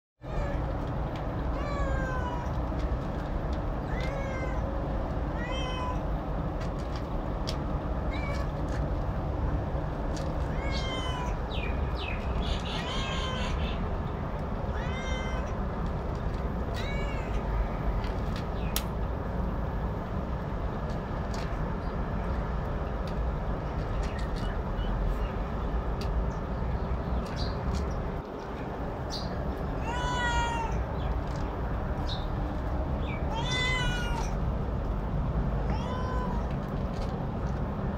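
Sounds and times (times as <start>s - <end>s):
cat meowing: 1.5s - 2.6s, 3.9s - 4.7s, 5.3s - 6.0s, 10.4s - 11.5s, 12.6s - 13.8s, 14.7s - 15.6s, 16.7s - 17.5s, 29.8s - 30.9s, 33.1s - 34.4s, 35.6s - 36.5s.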